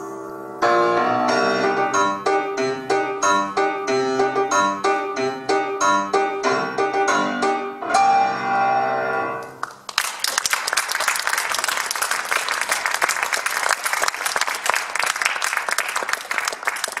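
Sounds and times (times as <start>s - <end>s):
piano chord: 0.0s - 9.6s
audience applause: 9.5s - 17.0s.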